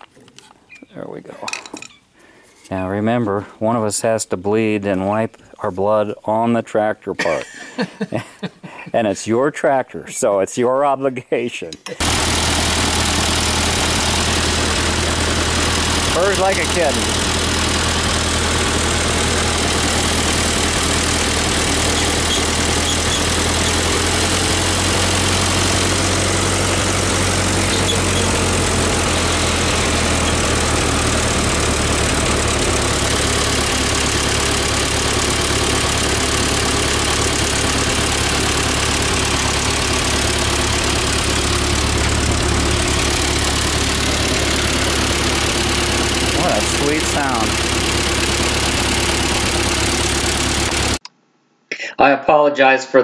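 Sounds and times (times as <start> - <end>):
tractor engine idling: 12.0 - 51.0.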